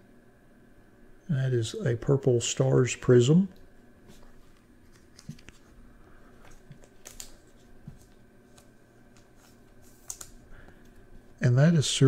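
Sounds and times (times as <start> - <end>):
trading card being handled: 4.1 - 5.8, 6.4 - 11.0.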